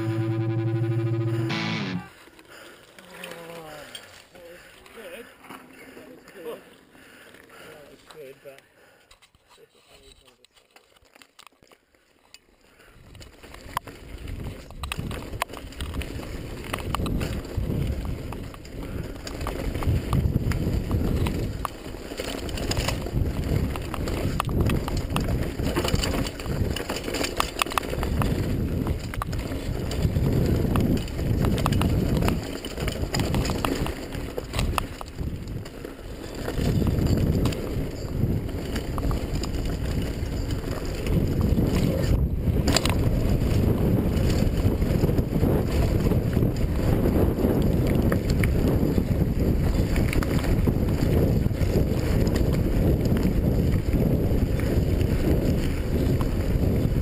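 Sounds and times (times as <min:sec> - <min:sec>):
bike clicks and rattles: 0:09.0 - 0:57.0
wind buffeting microphone: 0:14.1 - 0:21.6, 0:22.4 - 0:26.8, 0:28.0 - 0:57.0.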